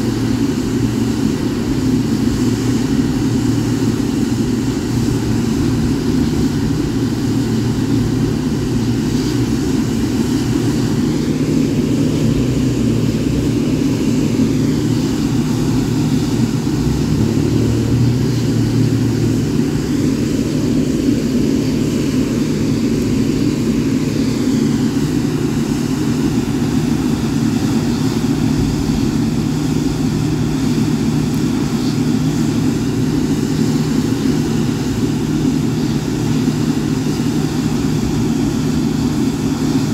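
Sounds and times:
jet engines idling: 0:00.0 - 0:39.9.

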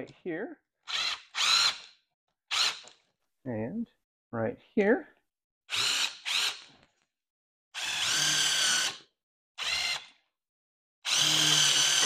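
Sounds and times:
cordless drill spinning: 0:00.9 - 0:03.0, 0:05.7 - 0:06.9, 0:07.8 - 0:10.2, 0:11.0 - 0:12.0.

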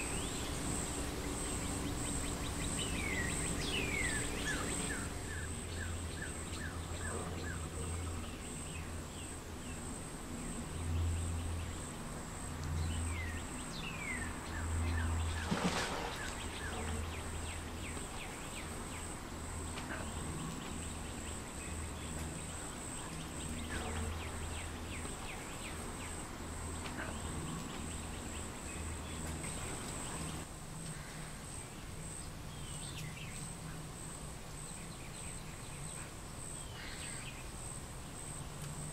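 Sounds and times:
bird chirps: 0:00.0 - 0:08.9
insect trilling drone: 0:00.0 - 0:38.9.

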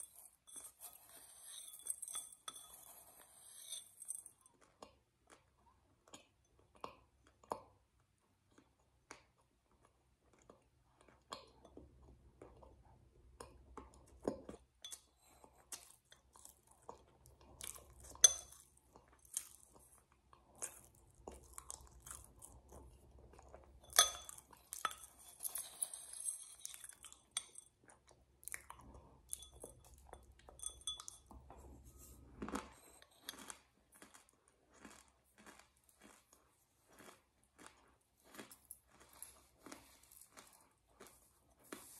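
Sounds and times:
metal spoon clinking on glass: 0:00.0 - 0:04.4, 0:18.2 - 0:18.6, 0:23.8 - 0:27.7, 0:29.3 - 0:31.5
chewing and crunching food: 0:00.0 - 0:41.9.

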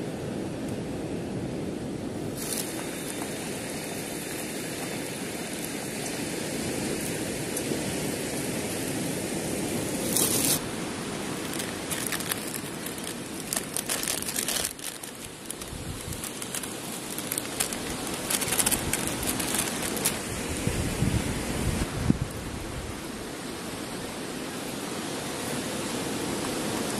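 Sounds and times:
steady hiss: 0:02.1 - 0:26.9
plastic sachets crinkling and tearing: 0:11.2 - 0:20.3.

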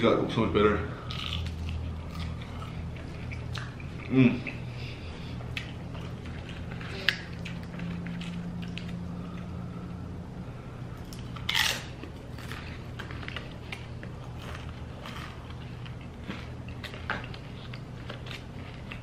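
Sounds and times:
low steady hum: 0:00.0 - 0:19.0
chips crunching and chewing: 0:01.0 - 0:04.2, 0:05.5 - 0:09.4, 0:11.0 - 0:19.0.

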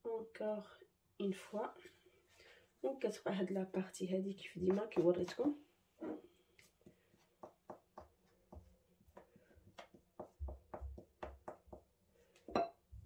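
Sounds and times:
spoon tapping and stirring paste: 0:04.6 - 0:05.6, 0:06.8 - 0:12.8.

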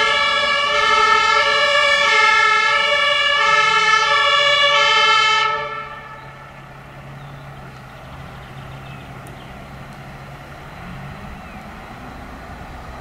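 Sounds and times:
fire engine two-tone siren: 0:00.0 - 0:06.8
truck engine humming: 0:00.0 - 0:13.0.

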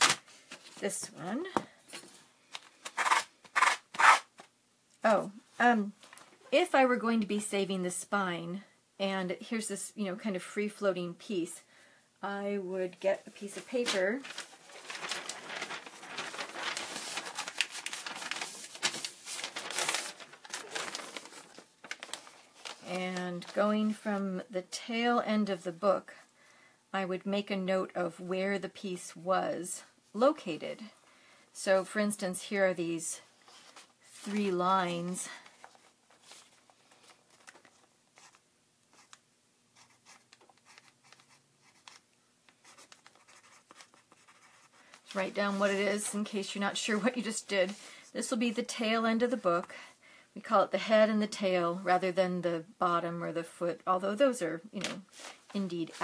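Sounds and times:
paper rustling and crinkling: 0:13.2 - 0:24.0, 0:33.4 - 0:39.2, 0:39.8 - 0:47.9, 0:54.8 - 0:56.0
pencil scratching on paper: 0:42.6 - 0:44.8.

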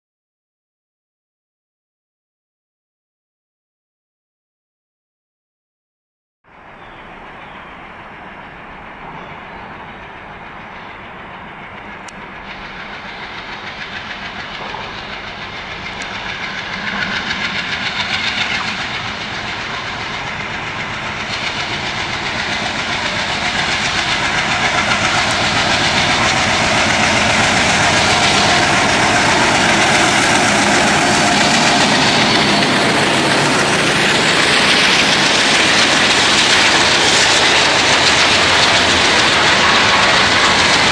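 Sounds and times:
diesel locomotive engine: 0:06.5 - 0:40.9
wagons rolling over rails: 0:17.5 - 0:40.9.

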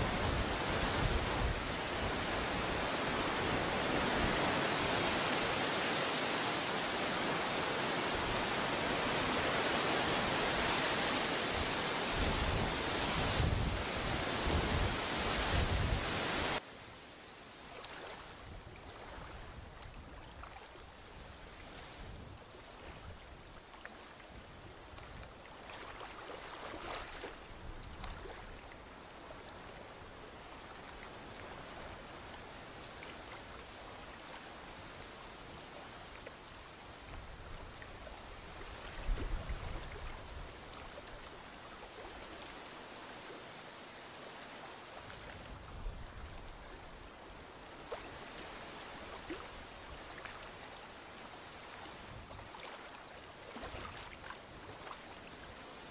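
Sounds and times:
wind rumble on microphone: 0:00.0 - 0:05.4, 0:11.5 - 0:16.6, 0:18.4 - 0:23.7, 0:37.1 - 0:41.3, 0:45.1 - 0:47.2
small waves lapping at shore: 0:00.0 - 0:55.9.

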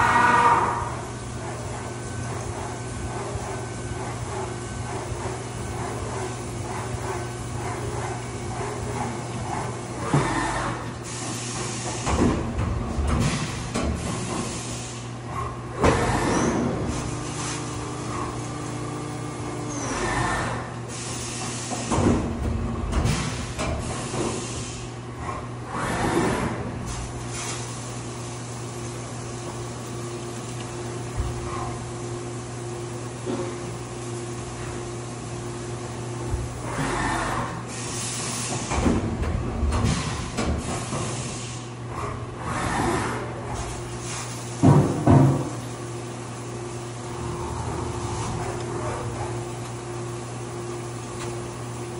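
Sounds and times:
milling machine hum: 0:00.0 - 0:51.9
mechanical clunks and thumps: 0:11.9 - 0:14.5, 0:21.8 - 0:24.4, 0:38.6 - 0:41.1, 0:44.6 - 0:45.6.

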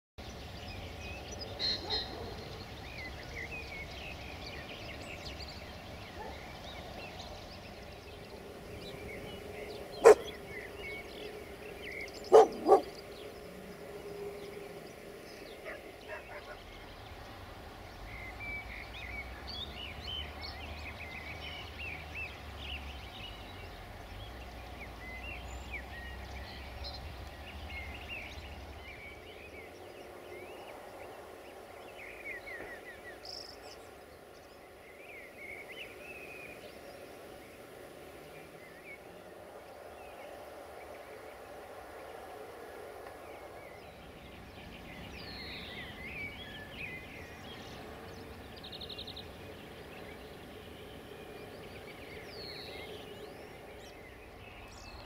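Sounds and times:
small birds chirping: 0:00.2 - 0:55.0
dog barking: 0:01.8 - 0:02.5, 0:10.0 - 0:10.3, 0:12.3 - 0:12.9, 0:15.6 - 0:16.6.

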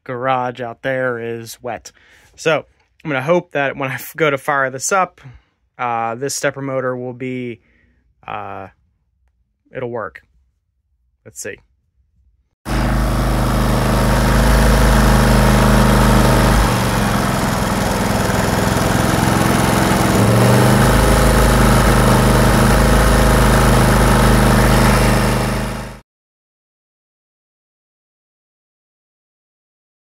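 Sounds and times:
small generator engine running: 0:12.7 - 0:26.0.

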